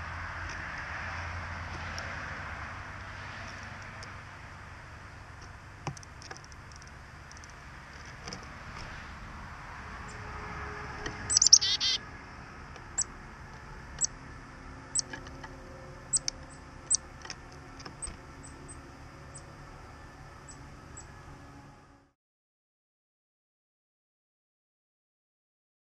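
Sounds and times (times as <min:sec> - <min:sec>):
songbirds chattering: 0:11.1 - 0:12.0, 0:12.8 - 0:14.2, 0:14.8 - 0:19.6, 0:20.4 - 0:21.2
songbird high chips: 0:11.3 - 0:12.0.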